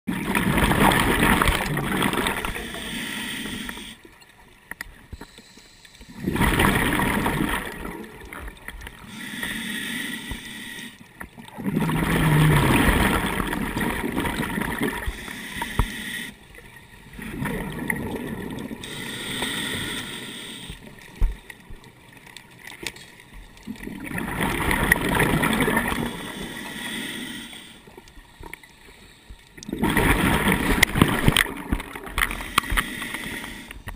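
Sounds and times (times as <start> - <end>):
bubbles: 0.1 - 2.8, 6.2 - 8.7, 11.4 - 15.2, 17.0 - 18.8, 23.6 - 26.2, 29.6 - 32.4
diver breathing through regulator: 2.2 - 4.1, 5.1 - 6.7, 8.9 - 11.1, 14.8 - 16.4, 18.7 - 20.9, 25.8 - 29.4, 32.2 - 33.9.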